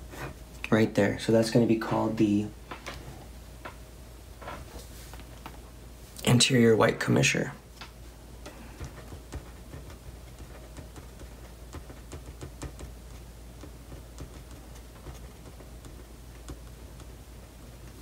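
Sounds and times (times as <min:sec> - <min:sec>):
low steady hum: 0:00.0 - 0:18.0
marker scratching on paper: 0:08.4 - 0:17.2.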